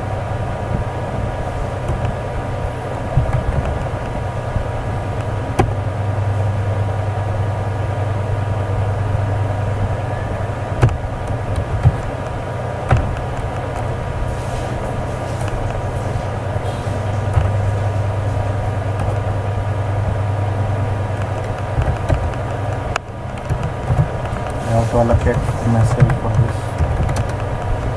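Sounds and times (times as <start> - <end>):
faint steady tones: 0.0 - 27.9
low hum and hiss: 0.0 - 27.9
sharp clicks: 21.1 - 27.9.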